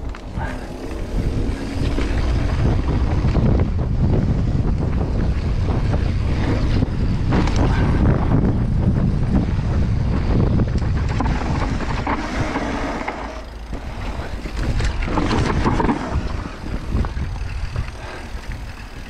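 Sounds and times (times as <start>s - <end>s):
bike knocking and rattling: 0.0s - 19.0s
tyres rumbling over dirt: 0.0s - 19.0s
wind buffeting microphone: 0.0s - 19.0s.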